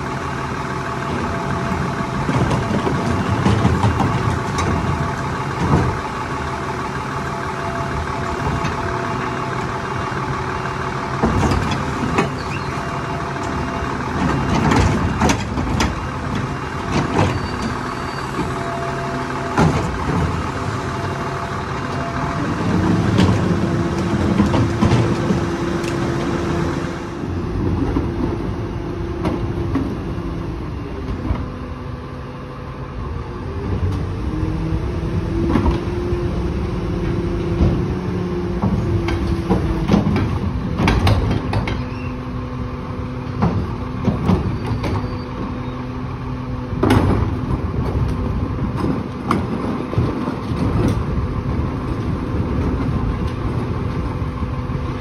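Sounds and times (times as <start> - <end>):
garbage truck engine revving: 0.0 - 55.0
carts clanking against metal: 1.0 - 27.0, 36.8 - 42.4, 43.2 - 55.0.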